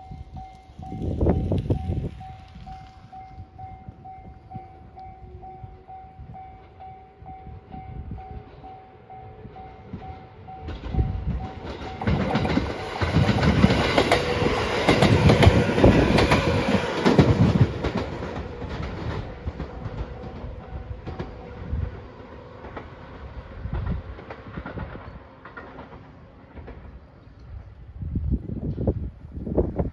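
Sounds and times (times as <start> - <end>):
train wheels clacking over rail joints: 9.9 - 27.7.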